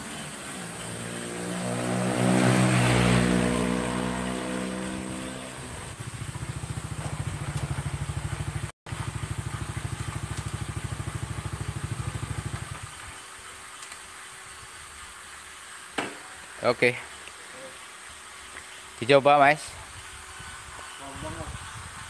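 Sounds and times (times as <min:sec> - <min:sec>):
motorcycle engine putting: 0:00.0 - 0:13.0.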